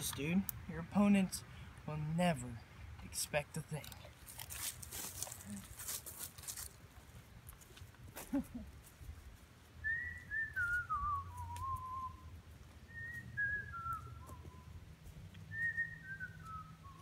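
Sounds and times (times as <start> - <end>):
person whistling a falling tune: 9.8 - 12.3.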